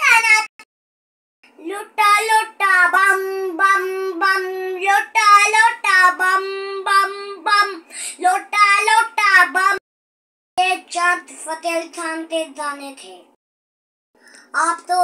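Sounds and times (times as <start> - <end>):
young boy singing: 1.5 - 9.8.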